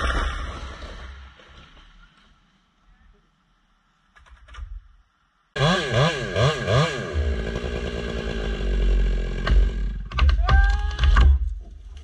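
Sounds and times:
chainsaw revving: 5.6 - 10.2.

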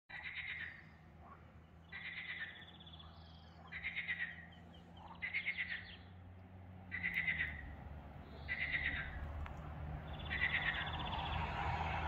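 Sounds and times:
frogs rattling calls: 0.1 - 6.0, 6.9 - 7.7, 8.4 - 9.4, 10.1 - 11.4.

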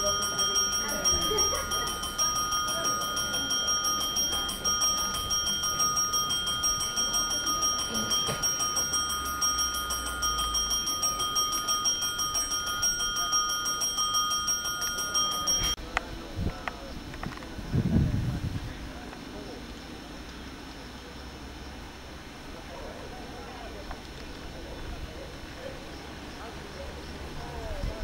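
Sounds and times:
railway warning bell ringing: 0.0 - 15.8.

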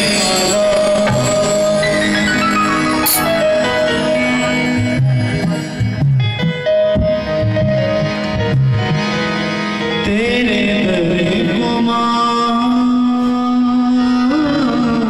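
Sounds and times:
person singing: 0.0 - 2.6, 10.0 - 15.0
keyboard chords: 0.0 - 14.8.

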